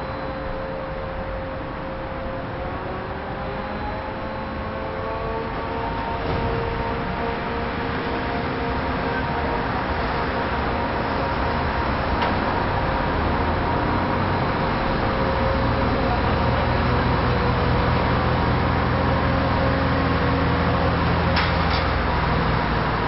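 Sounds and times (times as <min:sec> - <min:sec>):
diesel engine running: 0:05.5 - 0:23.0.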